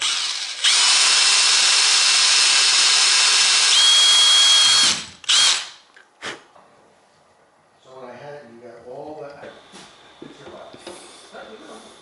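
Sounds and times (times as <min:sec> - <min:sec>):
power tool grinding whine: 0:00.0 - 0:05.7.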